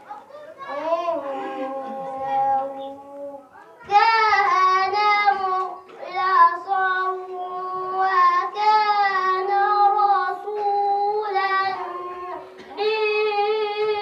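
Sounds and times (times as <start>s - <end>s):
boy chanting melodically: 0.0s - 14.0s.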